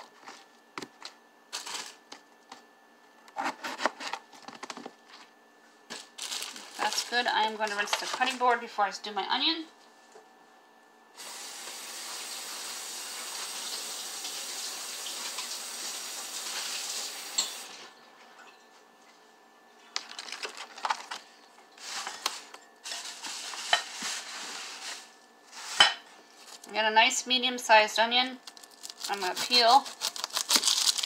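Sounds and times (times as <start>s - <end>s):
kitchen tap running: 11.2s - 17.8s.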